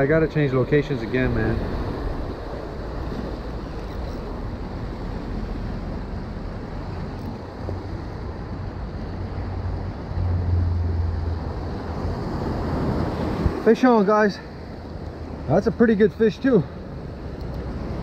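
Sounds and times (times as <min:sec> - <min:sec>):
surf washing against rocks: 0:00.0 - 0:10.0, 0:10.8 - 0:18.0
wind buffeting microphone: 0:00.0 - 0:13.8.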